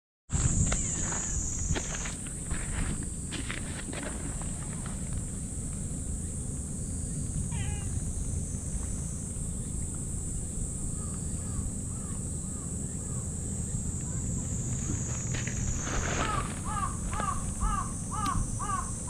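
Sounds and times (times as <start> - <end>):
cat meowing: 7.5 - 8.0.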